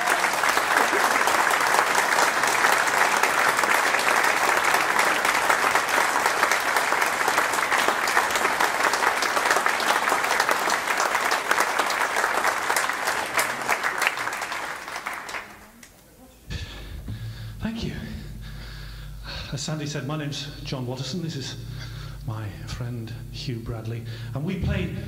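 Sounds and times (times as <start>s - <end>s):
audience applauding: 0.0s - 15.9s.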